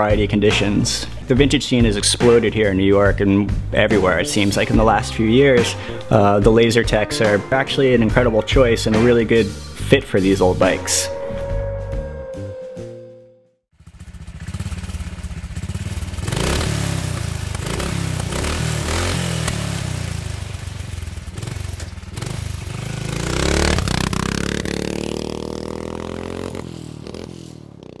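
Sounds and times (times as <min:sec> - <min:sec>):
motorcycle engine revving: 0:13.7 - 0:28.0.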